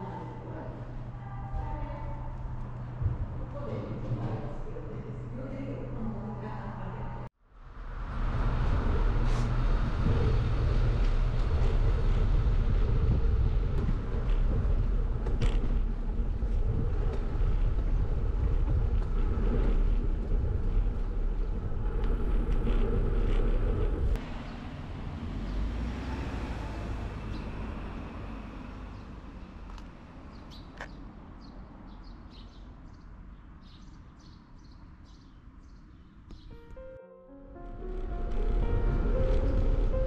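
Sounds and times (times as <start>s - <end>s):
outdoor ambience: 0.0s - 40.0s
road noise: 0.0s - 40.0s
wind buffeting microphone: 7.7s - 24.2s.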